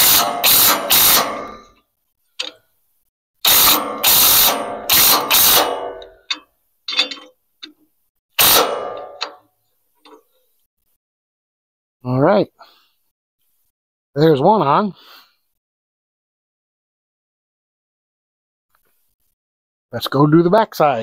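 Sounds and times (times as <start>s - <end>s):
wrench tightening bolt clicking: 2.4s - 2.6s, 3.5s - 7.8s.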